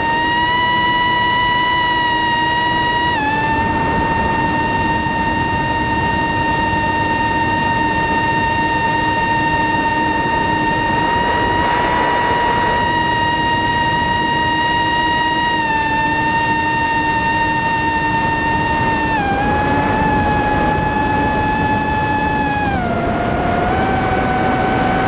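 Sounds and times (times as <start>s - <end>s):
drone propellers whining: 0.0s - 25.0s
rushing air: 10.0s - 14.3s.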